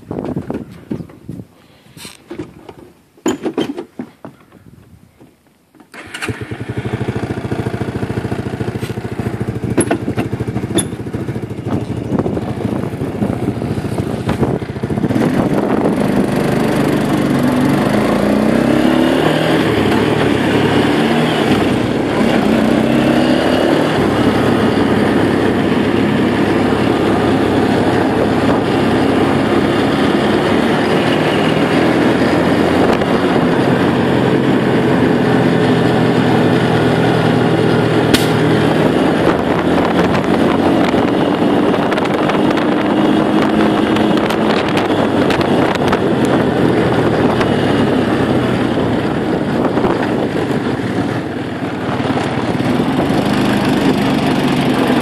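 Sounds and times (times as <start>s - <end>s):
engine clicks: 5.8s - 6.7s
atv engine idling and accelerating: 5.9s - 55.0s.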